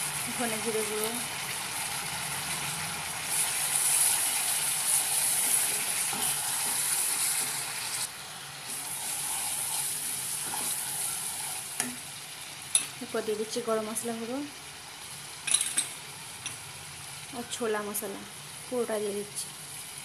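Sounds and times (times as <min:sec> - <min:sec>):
paste sizzling in oil: 0:00.0 - 0:13.6.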